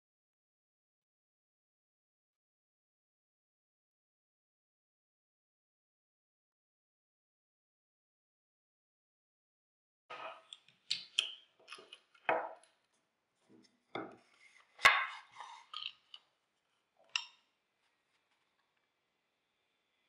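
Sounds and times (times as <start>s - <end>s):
wood knocking on wooden table: 12.3s - 12.6s.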